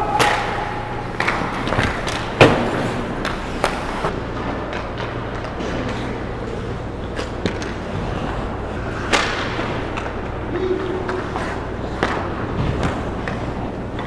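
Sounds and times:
sharp crack of stick or puck: 0.0 - 3.8, 9.0 - 10.2
low arena hum: 0.0 - 14.0
skates and sticks scraping ice: 0.1 - 14.0.

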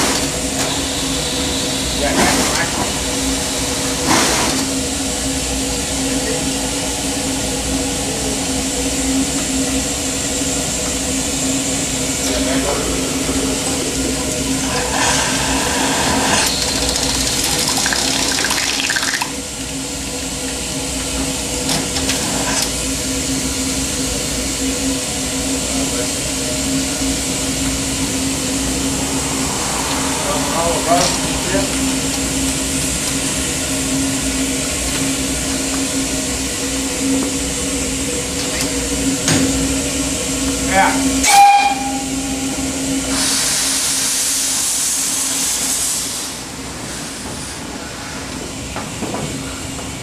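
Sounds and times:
steam hissing: 0.0 - 49.9
steady low hum: 19.3 - 40.9.

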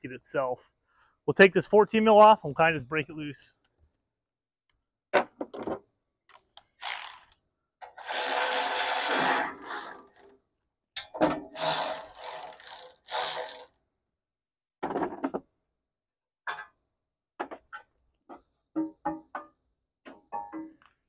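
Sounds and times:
electric ratchet motor: 6.8 - 7.4, 8.0 - 10.3, 11.6 - 13.8
ratchet click: 6.8 - 7.4, 11.6 - 13.7.

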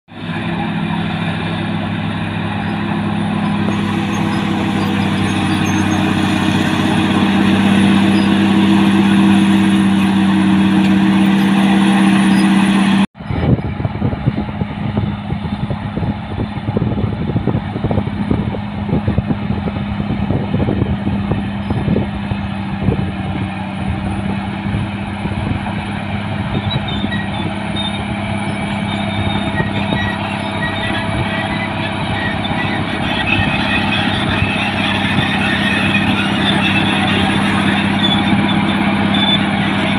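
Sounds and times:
bulldozer diesel engine: 0.0 - 39.9
clanks of steel tracks: 0.1 - 13.8, 25.3 - 39.9.

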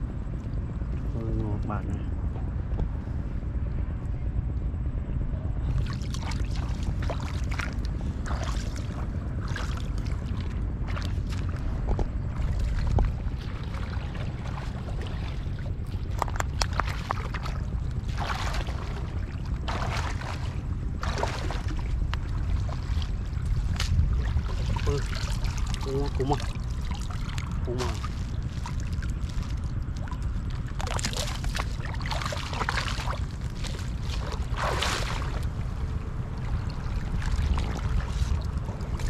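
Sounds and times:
steady low rumble: 0.0 - 39.0
water sloshing and splashing: 5.6 - 39.0.

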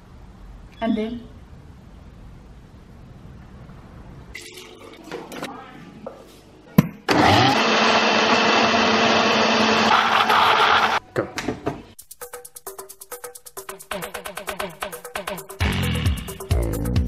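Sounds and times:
blender running: 7.1 - 11.0.

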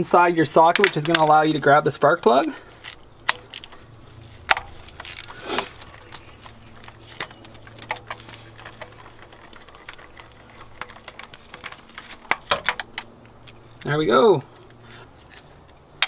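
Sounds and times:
ratchet wrench clicking: 2.4 - 3.8, 4.5 - 6.1.

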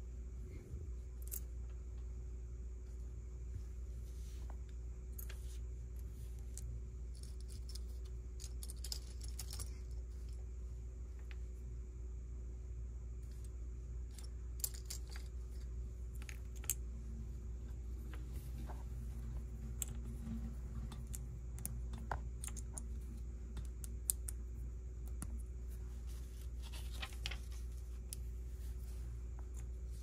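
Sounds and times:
steady low hum: 0.0 - 30.0
plastic bricks clicking and rattling: 6.5 - 10.3, 14.1 - 16.8, 20.8 - 24.4.

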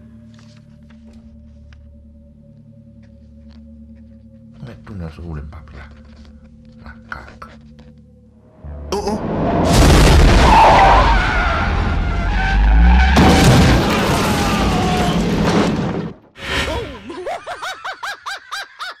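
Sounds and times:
whoosh: 8.6 - 11.6
glass shattering: 13.1 - 16.2.

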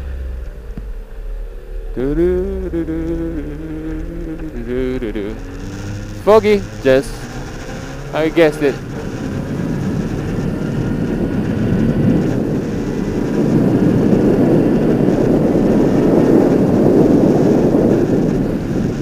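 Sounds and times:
motorcycle engine: 0.0 - 19.0
wind rush: 0.0 - 19.0.

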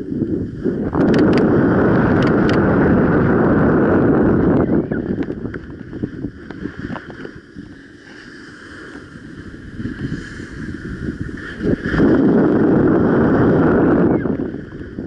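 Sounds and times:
wind rushing over microphone: 0.0 - 15.0.

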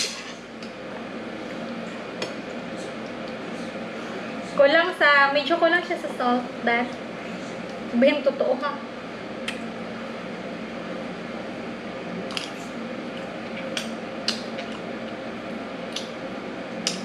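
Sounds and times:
room noise: 0.0 - 17.0.

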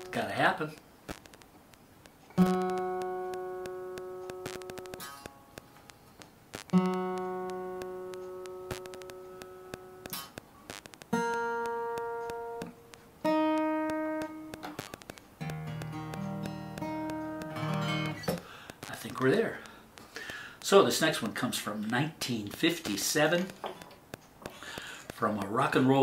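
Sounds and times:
small clicks: 0.7 - 26.0
acoustic guitar strings plucked: 2.3 - 20.4.

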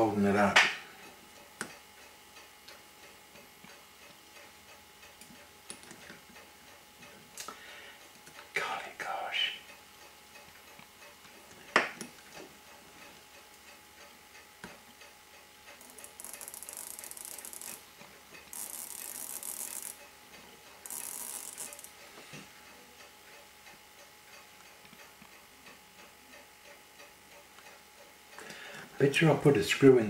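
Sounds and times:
rapid ratcheting clicks: 15.7 - 17.8, 18.4 - 20.1, 20.8 - 22.0.

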